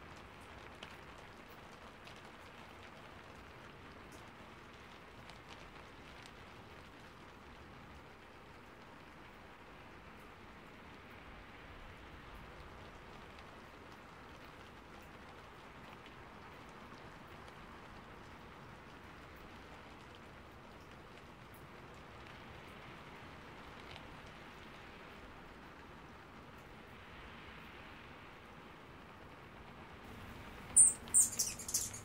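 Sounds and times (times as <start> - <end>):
light rain hiss: 0.0 - 32.0
water drips: 30.1 - 32.0.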